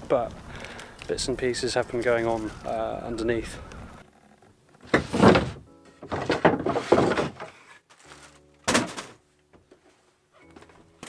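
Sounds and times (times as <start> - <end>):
music: 4.0 - 11.0.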